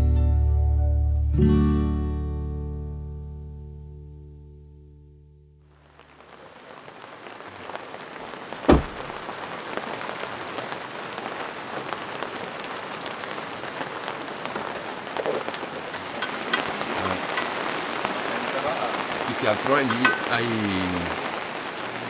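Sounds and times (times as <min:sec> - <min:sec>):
rain pattering: 0:05.6 - 0:22.0
sharp thump: 0:08.7 - 0:09.0.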